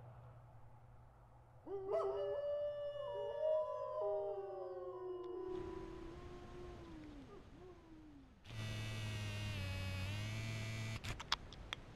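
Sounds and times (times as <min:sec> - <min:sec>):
drawn-out howl sliding down: 0:02.2 - 0:08.8
steady buzz: 0:08.5 - 0:11.2.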